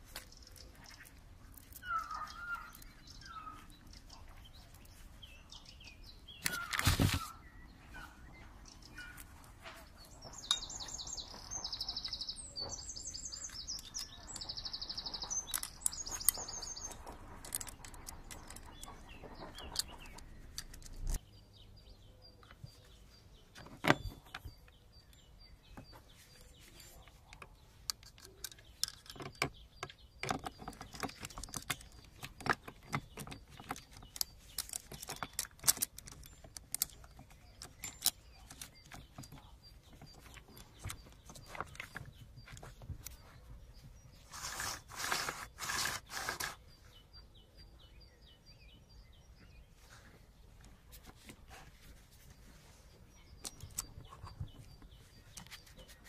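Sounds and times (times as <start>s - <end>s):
small birds chirping: 0.0s - 56.0s
metallic clicks and knocks: 13.4s - 21.2s, 27.3s - 43.2s.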